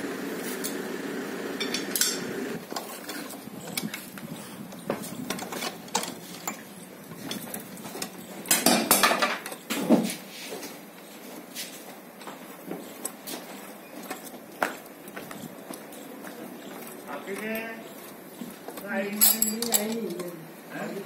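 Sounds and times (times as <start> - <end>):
steady background noise: 0.0 - 21.0
metal tools clinking and clanking: 1.6 - 10.0, 15.4 - 20.4.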